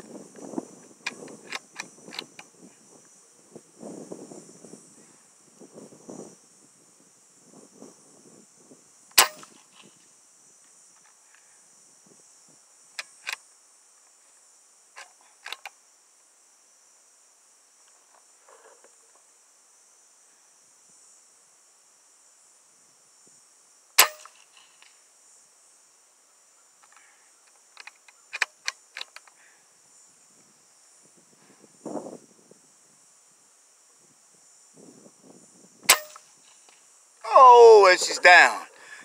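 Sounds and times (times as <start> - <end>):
faint high hiss: 0.0 - 39.0
air rifle shot: 9.2 - 9.5, 24.0 - 24.3, 35.9 - 36.2.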